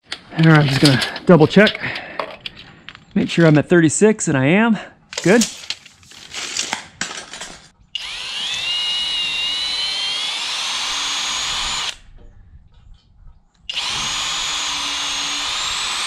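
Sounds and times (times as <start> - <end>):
power drill driving screws: 8.0 - 12.0, 13.7 - 16.0.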